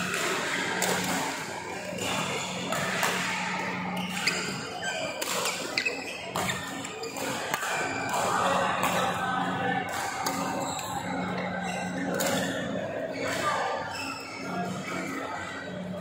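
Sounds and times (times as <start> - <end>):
steady hum or music: 0.0 - 16.0
shoes squeaking on court: 1.9 - 8.1.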